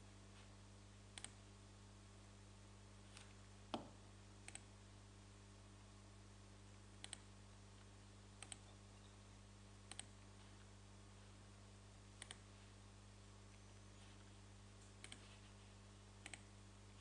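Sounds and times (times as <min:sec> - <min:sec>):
low electrical hum: 0:00.0 - 0:17.0
computer mouse clicking: 0:01.2 - 0:01.4, 0:04.4 - 0:04.7, 0:07.0 - 0:07.3, 0:08.4 - 0:08.7, 0:09.9 - 0:10.2, 0:12.2 - 0:12.4, 0:14.9 - 0:15.2, 0:16.2 - 0:16.5.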